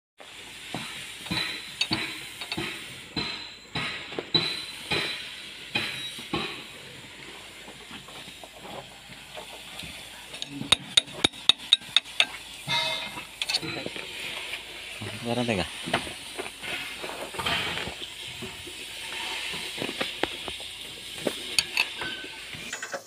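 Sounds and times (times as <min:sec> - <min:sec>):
steady hiss: 0:00.2 - 0:23.0
wrench knocking on steel cover: 0:01.3 - 0:05.1, 0:10.7 - 0:13.8.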